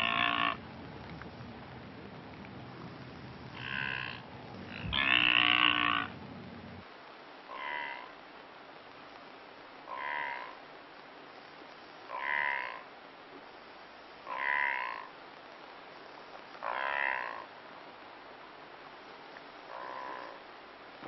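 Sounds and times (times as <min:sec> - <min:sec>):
wildebeest grunting call: 0:00.0 - 0:00.6, 0:03.5 - 0:06.8, 0:07.5 - 0:08.1, 0:09.9 - 0:10.6, 0:12.1 - 0:12.8, 0:14.3 - 0:15.1, 0:16.6 - 0:17.5, 0:19.7 - 0:20.4.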